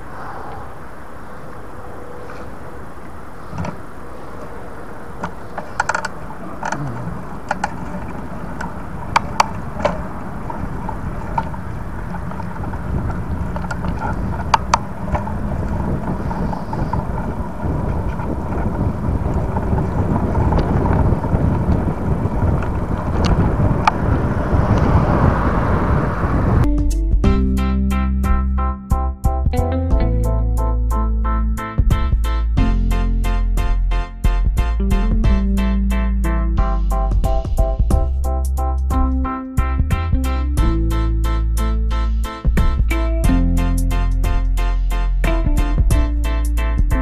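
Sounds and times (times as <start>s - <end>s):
bicycle tyre rolling: 0.0s - 26.7s
wind buffeting microphone: 0.0s - 26.7s
sharp clicks and rattles: 5.2s - 24.0s.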